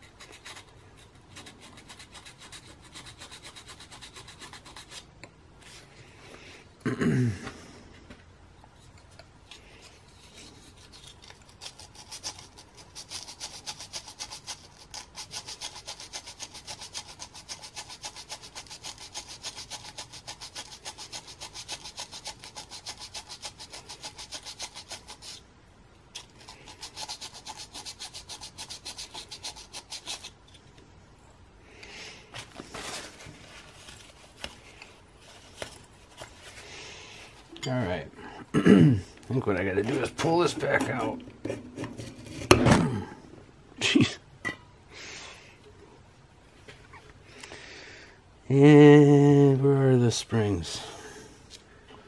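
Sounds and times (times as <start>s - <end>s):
sandpaper scratching strokes: 0.0s - 5.1s, 10.1s - 25.4s, 26.2s - 30.4s
handling sounds: 31.8s - 37.6s.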